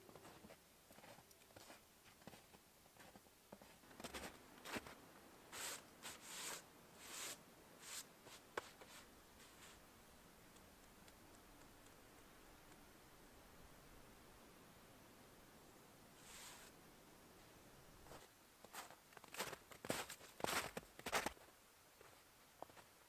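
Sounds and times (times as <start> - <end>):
footsteps in snow: 0.1 - 9.8, 16.2 - 16.8, 18.0 - 22.9
gloved hands brushing snow: 4.1 - 9.8, 16.2 - 16.8.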